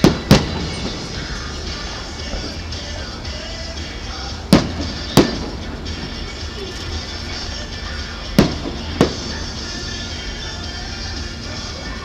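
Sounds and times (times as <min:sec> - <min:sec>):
firework shells booming: 0:00.0 - 0:03.0, 0:04.4 - 0:06.3, 0:08.3 - 0:09.6.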